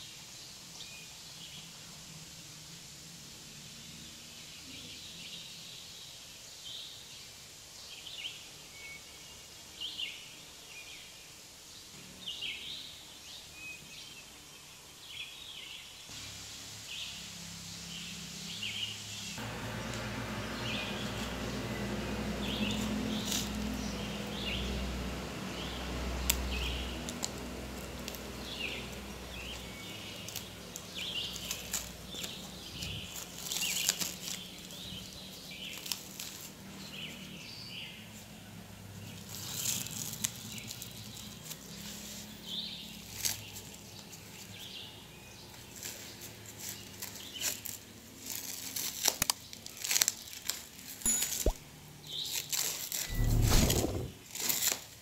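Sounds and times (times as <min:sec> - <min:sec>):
plastic wrap crinkling: 0:30.1 - 0:34.8, 0:46.8 - 0:51.0.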